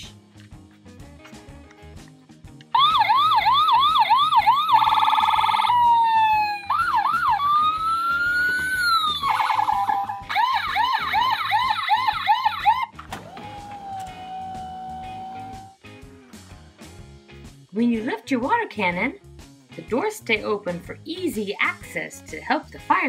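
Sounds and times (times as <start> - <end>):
toy fire truck siren: 2.8 - 15.8.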